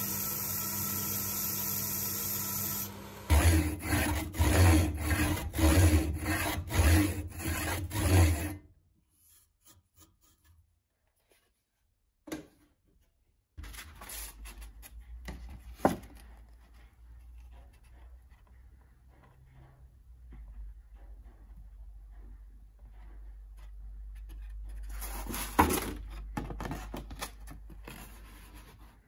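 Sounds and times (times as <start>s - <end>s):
hand saw cutting wood: 2.4s - 8.6s.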